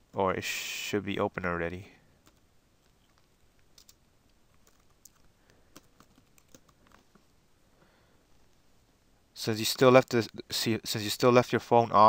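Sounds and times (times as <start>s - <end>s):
keystrokes on computer keyboard: 2.2s - 7.2s.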